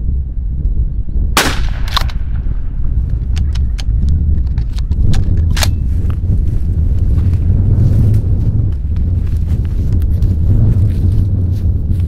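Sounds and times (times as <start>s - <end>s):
steady low rumble: 0.0s - 12.0s
loud crack: 1.4s - 2.7s
sharp snaps and clicks: 3.1s - 5.8s.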